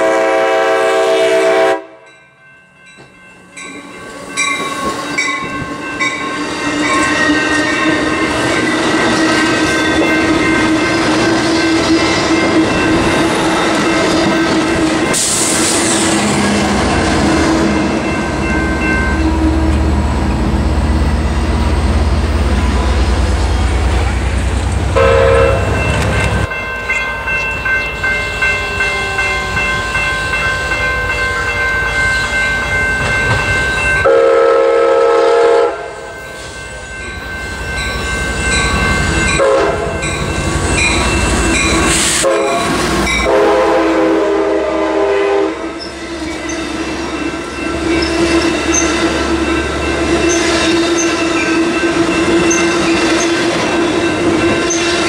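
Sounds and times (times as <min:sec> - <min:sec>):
train horn blasts: 0:00.0 - 0:02.1, 0:24.9 - 0:26.3, 0:34.0 - 0:36.4, 0:39.3 - 0:40.1, 0:42.2 - 0:45.8
diesel locomotive engine: 0:00.0 - 0:55.0
train cars clattering over rail joints: 0:32.9 - 0:33.9.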